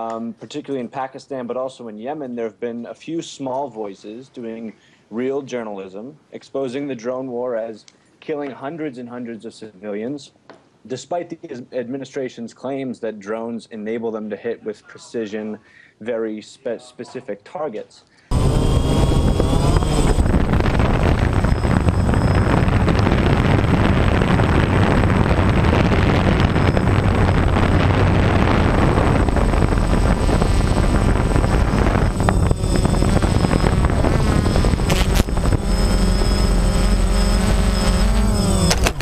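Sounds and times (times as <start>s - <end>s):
air rushing: 18.3s - 39.0s
quadcopter motors and propellers: 18.3s - 39.0s.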